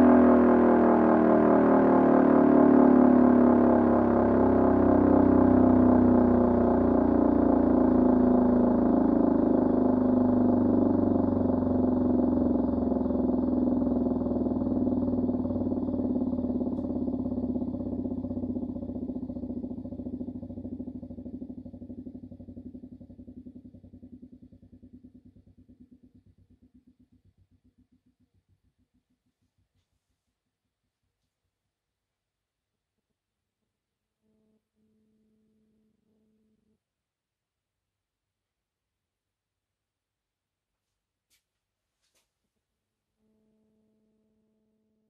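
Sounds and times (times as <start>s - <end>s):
air-raid siren running down: 0.0s - 19.9s
faint pulsing hum: 0.0s - 30.4s.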